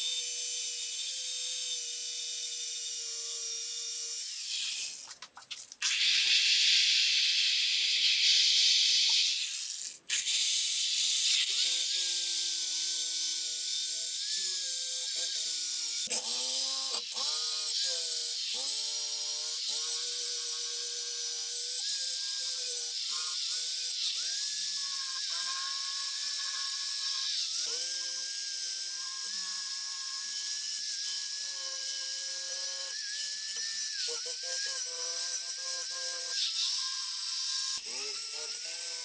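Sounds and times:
power drill whining: 11.3s - 39.0s.

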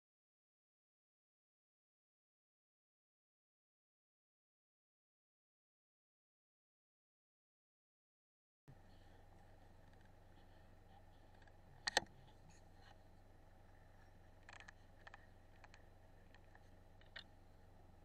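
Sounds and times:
steady low hum: 8.7s - 18.0s.

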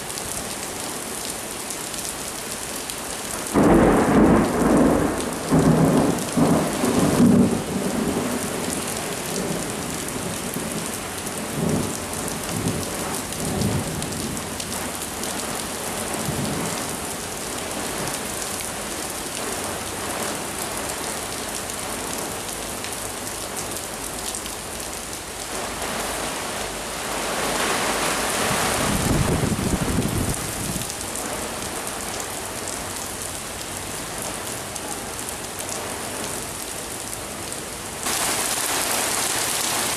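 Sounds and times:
heavy rain pouring: 0.0s - 39.9s
thunder rumbling: 3.6s - 8.5s.

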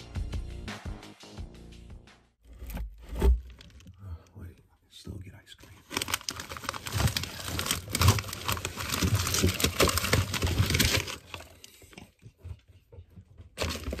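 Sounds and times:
plastic bags crinkling: 5.6s - 12.0s, 13.6s - 14.0s
frozen items knocking together: 5.8s - 11.7s, 13.5s - 14.0s.

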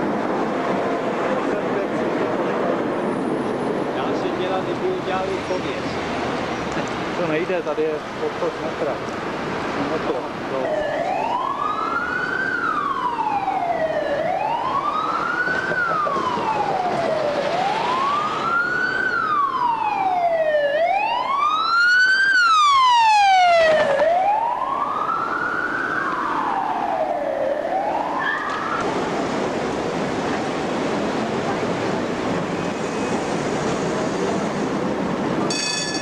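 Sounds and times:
street traffic hiss: 0.0s - 20.8s, 24.8s - 36.0s
emergency vehicle siren wailing: 10.0s - 34.3s.

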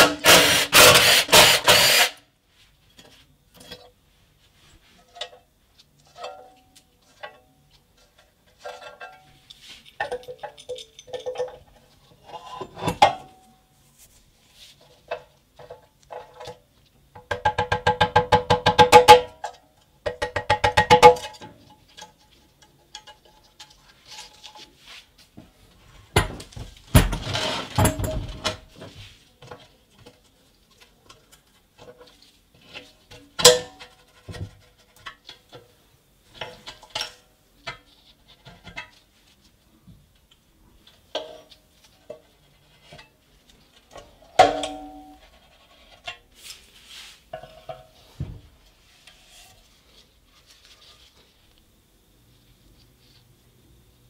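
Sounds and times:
tools tapping on metal: 8.7s - 11.8s.

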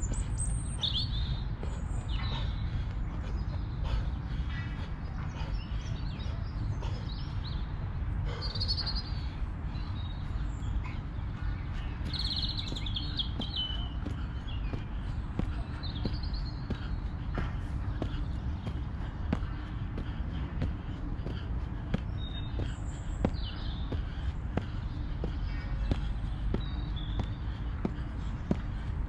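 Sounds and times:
low outdoor rumble: 0.0s - 29.0s
songbirds chirping: 0.0s - 29.0s.

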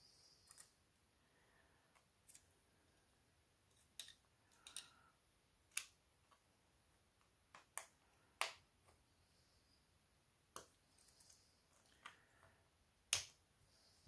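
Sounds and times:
light clicks and taps of small tools: 1.9s - 3.0s, 3.7s - 5.0s, 5.7s - 6.4s, 7.2s - 9.0s, 10.5s - 13.4s.

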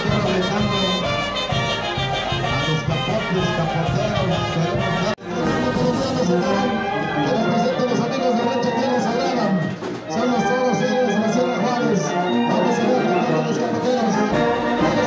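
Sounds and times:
brass band music: 0.0s - 15.0s.

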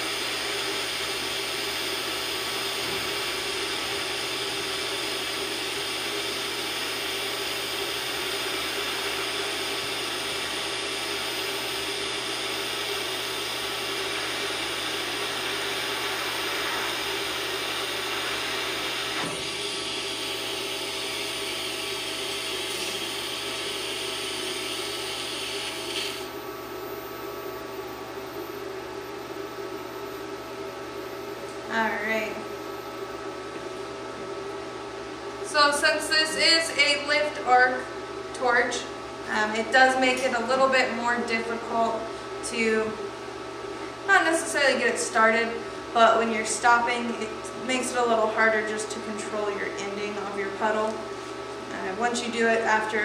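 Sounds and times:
welding arc hissing: 0.0s - 26.4s
faint machine hum: 0.0s - 53.0s.

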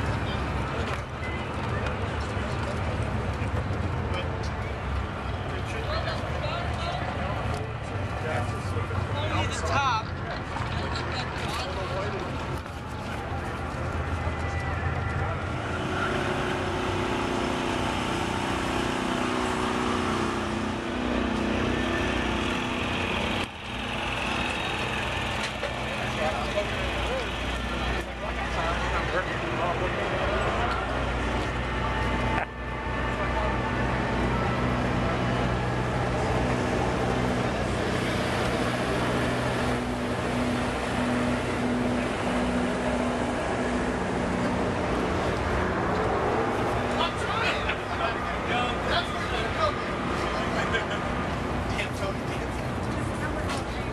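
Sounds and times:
open-air background noise: 0.0s - 53.9s
outdoor background noise: 0.0s - 53.9s
engine running: 11.5s - 53.9s.

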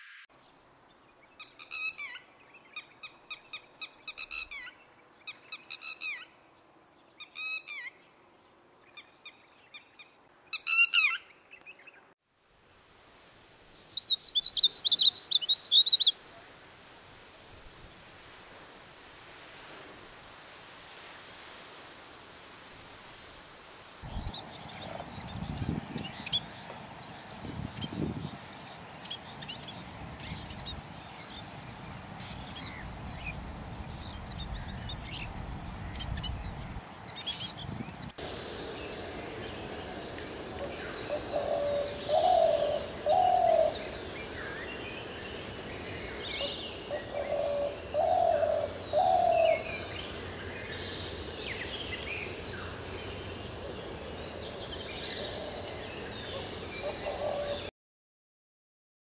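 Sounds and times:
small birds chirping: 24.0s - 57.6s
dove cooing: 41.1s - 43.7s, 46.9s - 49.7s, 56.8s - 57.6s.

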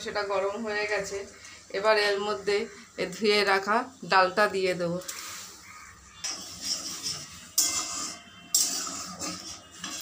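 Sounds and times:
spatula scraping metal pan: 5.1s - 10.0s.

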